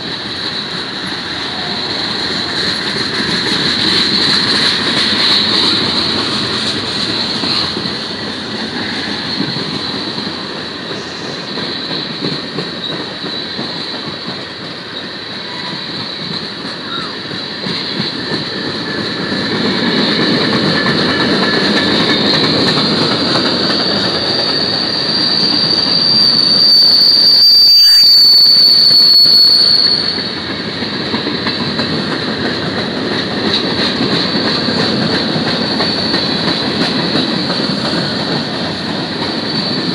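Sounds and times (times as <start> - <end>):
train wheels rumbling on rail: 0.0 - 39.9
high-pitched wheel squeal: 23.2 - 30.4, 39.2 - 39.9.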